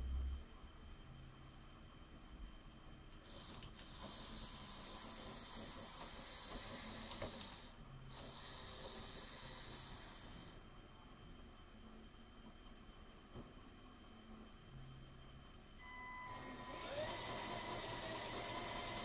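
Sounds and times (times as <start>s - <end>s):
toy train motor whirring: 3.3s - 10.6s, 16.7s - 19.0s.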